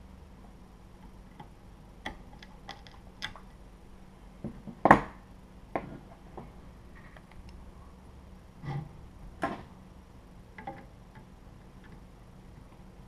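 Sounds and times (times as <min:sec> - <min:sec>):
small parts and tools clicking: 0:01.0 - 0:03.6, 0:10.6 - 0:12.8.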